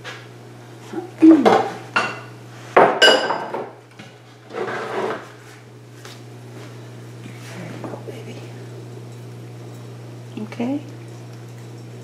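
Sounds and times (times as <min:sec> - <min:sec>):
dishware clinking and knocking: 0:01.5 - 0:03.7.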